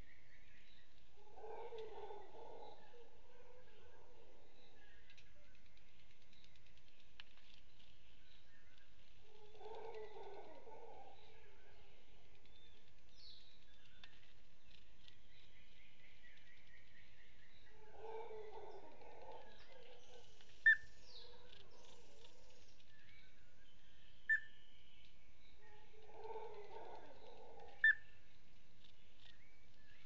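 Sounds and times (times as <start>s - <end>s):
forest bird calls: 7.8s - 28.2s.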